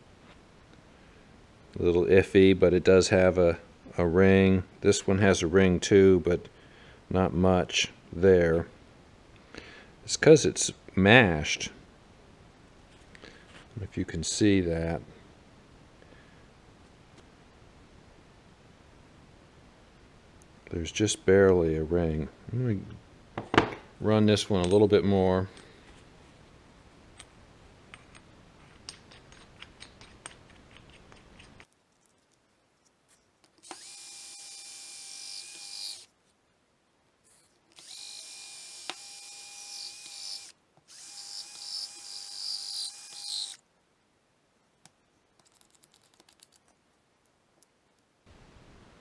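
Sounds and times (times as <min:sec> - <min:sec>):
cordless drill whining and grinding: 0:33.6 - 0:36.1, 0:37.4 - 0:43.6.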